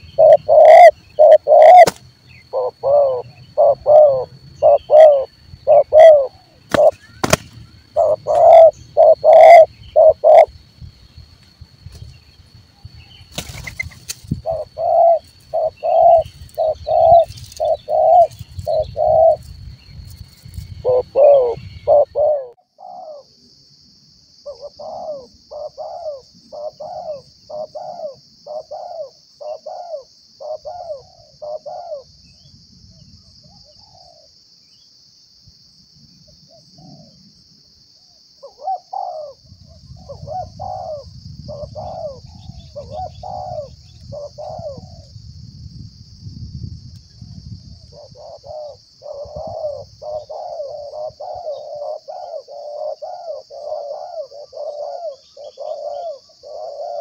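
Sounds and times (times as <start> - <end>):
doves cooing: 0.0 - 10.6, 13.3 - 19.5, 20.6 - 23.3, 24.4 - 32.1, 38.4 - 45.1, 47.8 - 57.0
high insect drone: 0.0 - 57.0.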